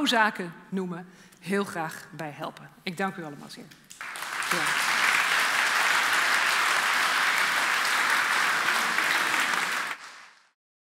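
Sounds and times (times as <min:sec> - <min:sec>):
audience applauding: 0:04.0 - 0:10.6.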